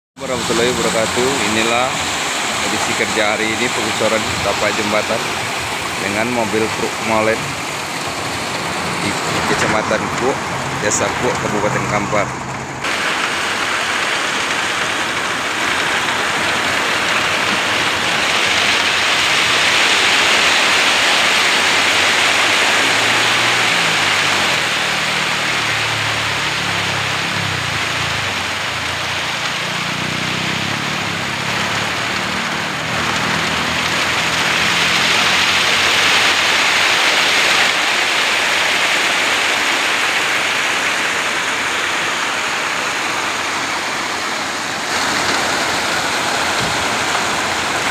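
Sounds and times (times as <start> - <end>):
concrete rushing down chute: 0.2 - 28.3
truck engine humming: 0.2 - 47.9.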